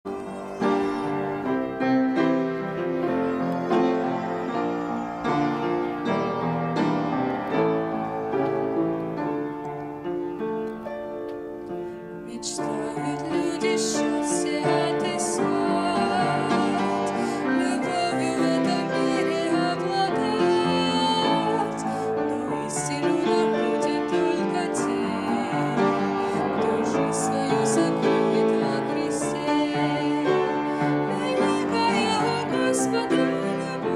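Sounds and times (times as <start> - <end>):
grand piano playing: 0.0 - 33.9
woman singing: 12.3 - 33.9.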